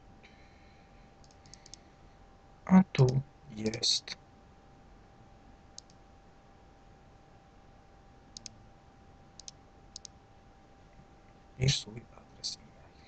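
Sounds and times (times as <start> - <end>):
faint background hiss: 0.0 - 13.0
computer mouse clicking: 1.2 - 1.8, 5.8 - 6.0, 8.4 - 8.6, 9.4 - 10.2.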